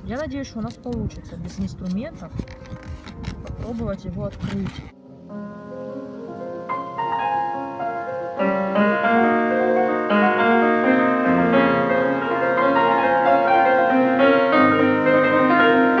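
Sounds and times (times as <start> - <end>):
piano music: 4.9 - 16.0.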